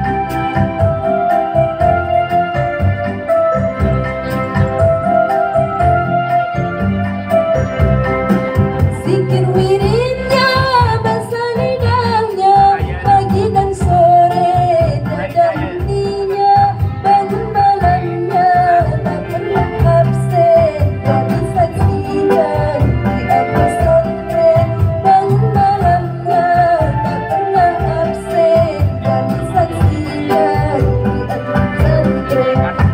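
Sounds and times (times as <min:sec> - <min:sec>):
backing music with low beat: 0:00.0 - 0:32.9
woman singing into microphone: 0:08.9 - 0:32.9.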